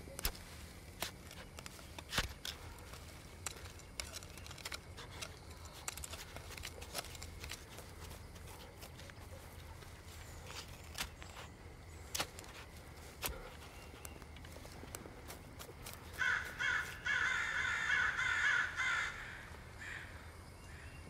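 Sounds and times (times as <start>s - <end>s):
trowel scraping in soil: 0.0s - 16.2s
small clicks: 1.0s - 9.2s.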